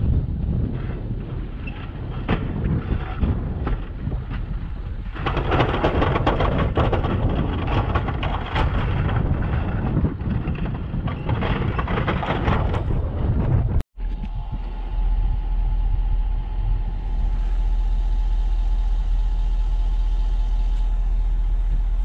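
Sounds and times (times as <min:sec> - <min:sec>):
wind buffeting microphone: 0:00.0 - 0:19.2
truck engine running: 0:12.9 - 0:22.0.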